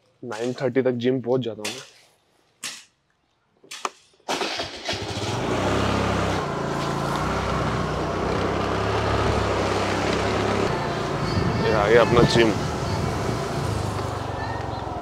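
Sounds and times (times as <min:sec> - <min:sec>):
scooter engine running: 0:04.5 - 0:15.0.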